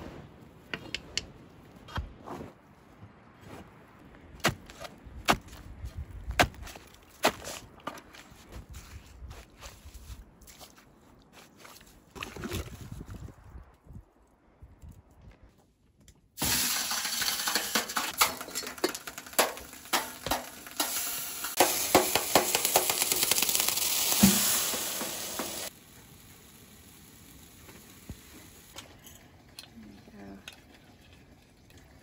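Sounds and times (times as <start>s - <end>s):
wet pot sizzling on hot metal: 16.4s - 29.7s.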